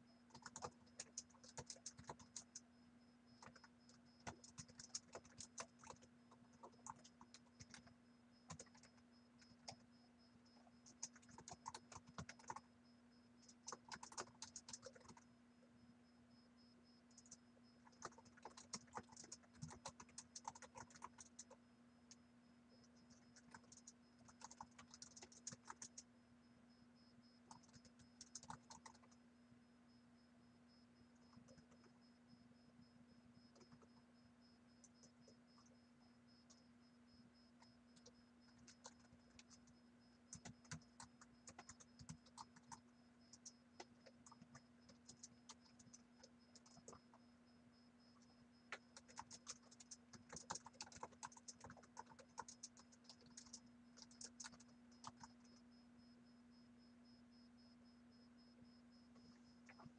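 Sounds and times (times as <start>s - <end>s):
keyboard typing: 0.3s - 2.7s, 3.4s - 9.8s, 10.6s - 12.7s, 13.4s - 15.3s, 17.1s - 22.2s, 22.8s - 26.1s, 27.4s - 29.2s, 31.2s - 32.0s, 33.5s - 34.0s, 37.6s - 47.2s, 48.2s - 55.6s.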